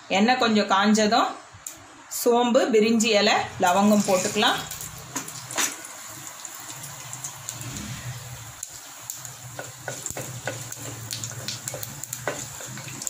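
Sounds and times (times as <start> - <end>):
spices sizzling in hot oil: 3.4 - 13.0
crackles and pops of spluttering oil: 8.6 - 13.0.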